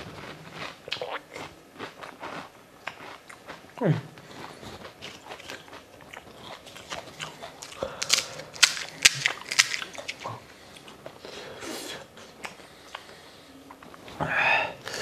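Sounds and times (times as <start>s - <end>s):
crisp shells crunching and cracking: 4.8s - 10.4s.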